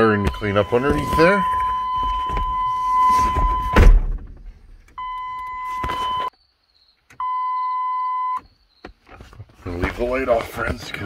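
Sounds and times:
electronic warning beeps: 0.0 - 3.9, 5.0 - 6.3, 7.2 - 8.4.

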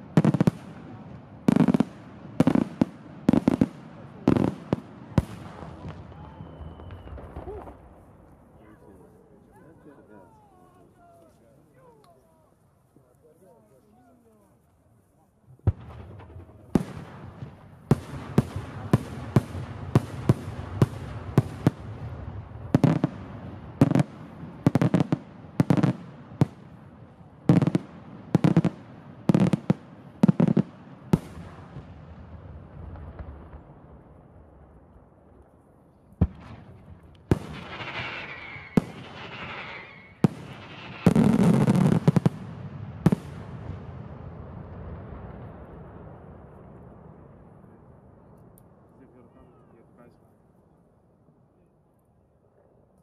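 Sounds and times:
firework shells bursting: 36.3 - 42.3.

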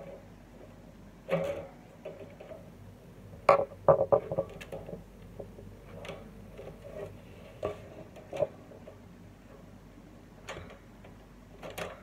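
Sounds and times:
plastic parts clicking and knocking: 3.5 - 6.8, 10.5 - 12.0.

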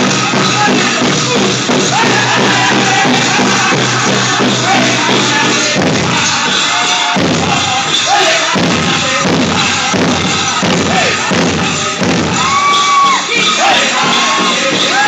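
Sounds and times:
big drum steady beat: 0.0 - 15.0
high wavering voices singing: 0.0 - 15.0.

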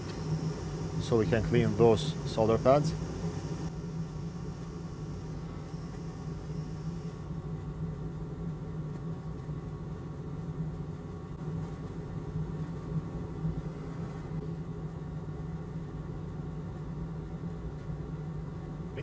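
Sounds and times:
machine humming: 0.0 - 7.3.

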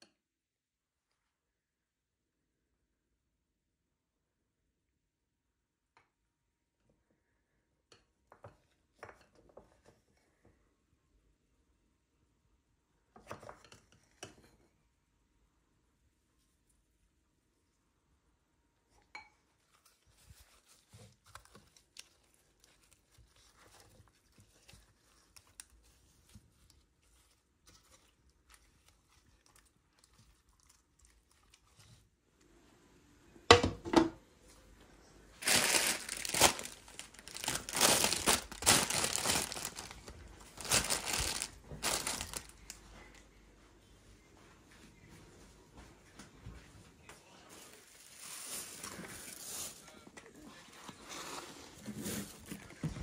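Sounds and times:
plastic bag crinkling: 35.4 - 42.8, 47.8 - 49.7.

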